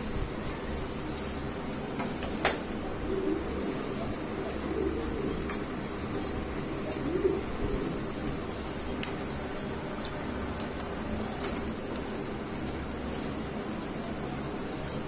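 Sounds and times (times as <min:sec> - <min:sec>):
pigeons cooing: 0:02.6 - 0:09.6.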